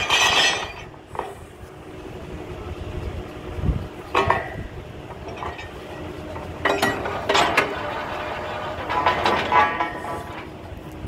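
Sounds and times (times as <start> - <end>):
metal clanking of drill pipe: 0.0 - 1.5, 4.0 - 10.7
low steady rumble: 0.0 - 11.0.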